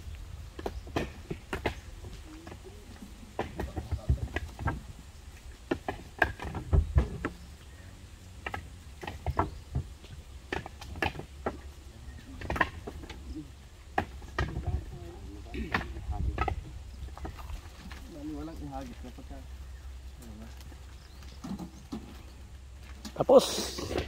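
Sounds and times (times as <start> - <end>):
coconuts knocking together: 0.5 - 7.4, 8.4 - 18.1
heavy thumps of coconuts: 0.5 - 7.6, 8.4 - 19.0.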